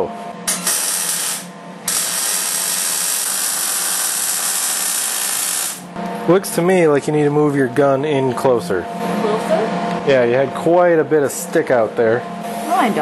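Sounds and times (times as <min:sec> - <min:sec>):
welding arc crackling: 0:00.5 - 0:05.9.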